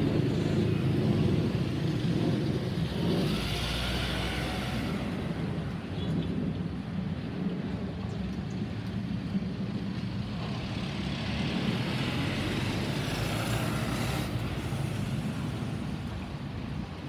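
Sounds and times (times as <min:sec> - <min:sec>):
jet engines rumbling: 0:00.0 - 0:10.7.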